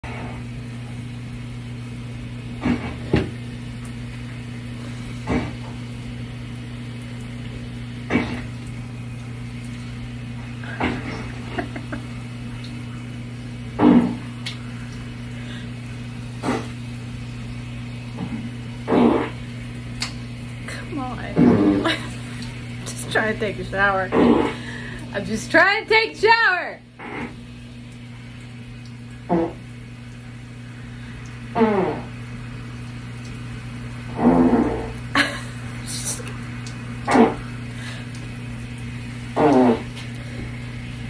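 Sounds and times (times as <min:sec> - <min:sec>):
steady low hum: 0:00.0 - 0:41.0
fart sound effects: 0:08.1 - 0:08.6, 0:10.6 - 0:12.0, 0:13.7 - 0:14.5, 0:16.4 - 0:16.8, 0:18.2 - 0:19.5, 0:21.3 - 0:22.1, 0:24.1 - 0:24.6, 0:27.0 - 0:27.4, 0:29.2 - 0:29.7, 0:31.5 - 0:32.2, 0:34.1 - 0:35.2, 0:37.0 - 0:37.5, 0:39.3 - 0:40.2.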